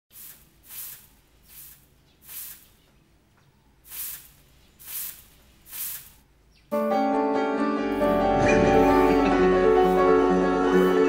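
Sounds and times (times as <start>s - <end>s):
broom sweeping dirt ground: 0.1s - 2.9s, 3.8s - 6.3s, 7.9s - 11.0s.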